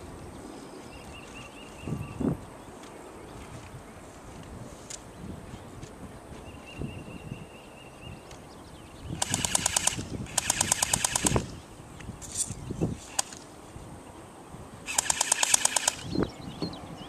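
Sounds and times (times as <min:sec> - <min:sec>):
airsoft gun automatic fire: 0:09.2 - 0:11.6, 0:13.1 - 0:13.4, 0:14.9 - 0:16.2.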